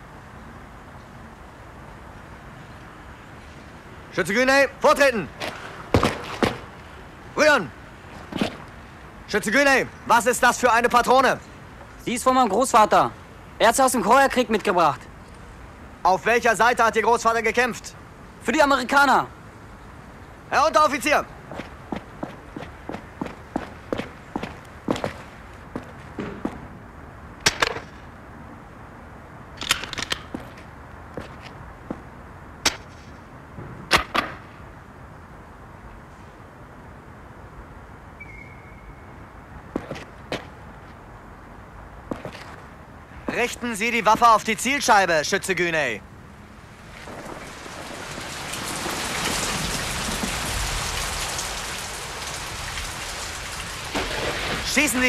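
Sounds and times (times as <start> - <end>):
rain falling: 10.2 - 27.0, 46.3 - 55.0.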